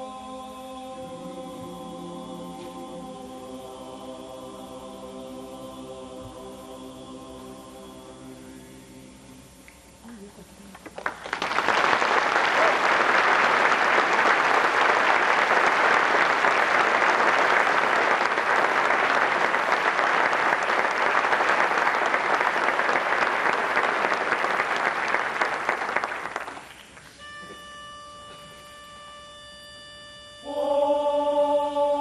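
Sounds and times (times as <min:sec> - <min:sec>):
audience applauding: 0:10.9 - 0:27.1.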